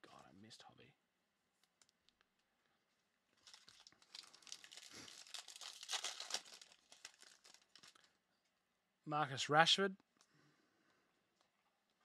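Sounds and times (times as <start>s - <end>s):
foil pack crinkling and tearing: 3.4s - 8.2s.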